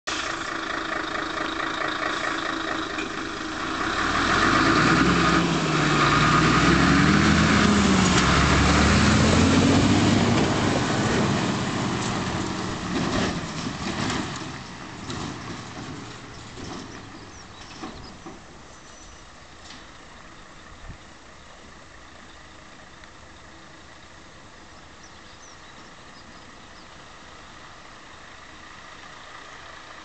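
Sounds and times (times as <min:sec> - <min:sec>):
diesel truck accelerating past: 0:00.1 - 0:30.0.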